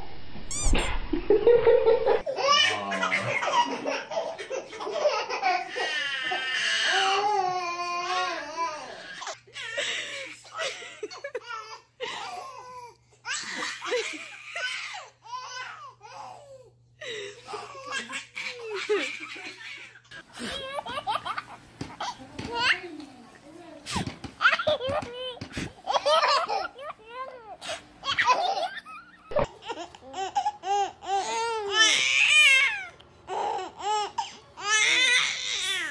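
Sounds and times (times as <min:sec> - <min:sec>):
babies giggling: 0:01.8 - 0:06.7, 0:17.0 - 0:23.0, 0:24.4 - 0:27.3, 0:28.0 - 0:32.0.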